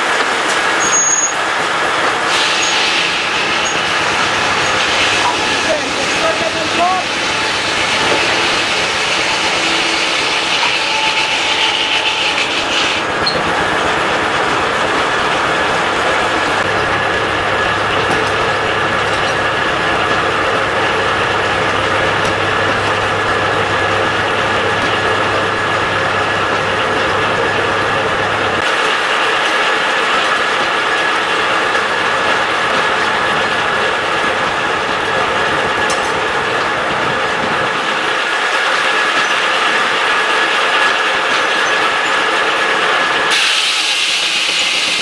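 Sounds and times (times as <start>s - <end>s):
circular sawmill running: 0.0s - 45.0s
saw blade spinning: 3.5s - 13.5s.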